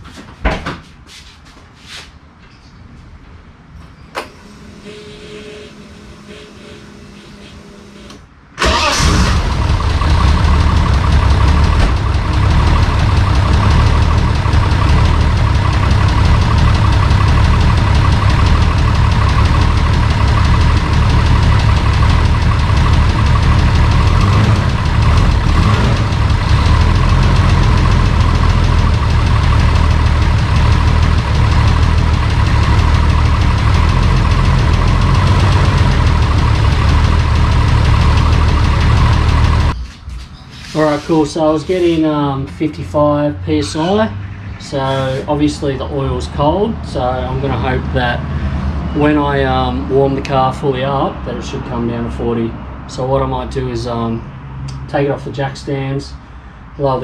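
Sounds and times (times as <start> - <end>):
car engine idling: 8.6 - 39.8.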